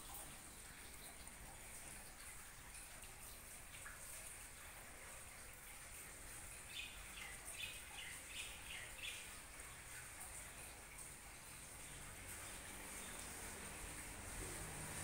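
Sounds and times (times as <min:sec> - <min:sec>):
faint steady hiss: 0:00.0 - 0:15.0
bird chirping: 0:06.7 - 0:09.4.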